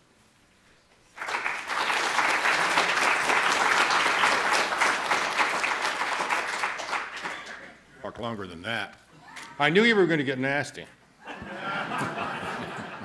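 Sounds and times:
audience applauding: 0:01.2 - 0:07.8.

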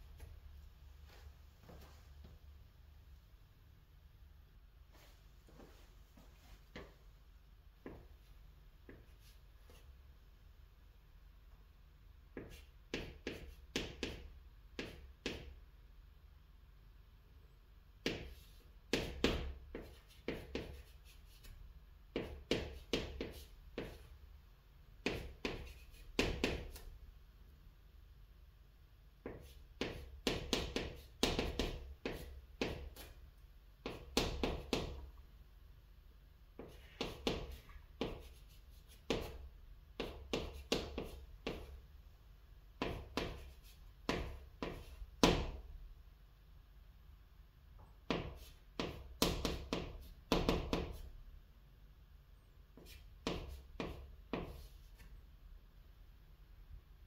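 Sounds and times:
chalk tapping and scraping on chalkboard: 0:07.8 - 0:10.0, 0:12.3 - 0:15.6, 0:18.0 - 0:24.1, 0:25.0 - 0:27.0, 0:29.2 - 0:33.2, 0:33.8 - 0:35.1, 0:36.5 - 0:41.8, 0:42.7 - 0:45.6, 0:47.8 - 0:51.2, 0:52.7 - 0:55.2.

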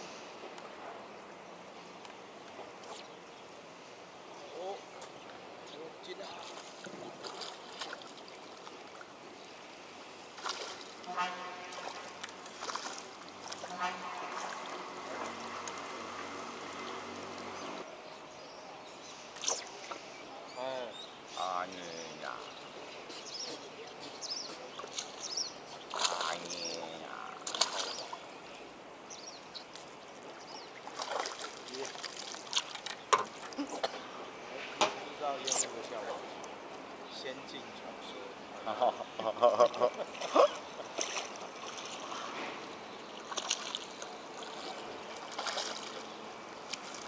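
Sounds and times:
fish splashing in water: 0:06.6 - 0:09.0, 0:10.4 - 0:17.6, 0:27.4 - 0:28.2, 0:30.8 - 0:33.6, 0:43.1 - 0:47.0
small birds chirping: 0:15.2 - 0:47.0.

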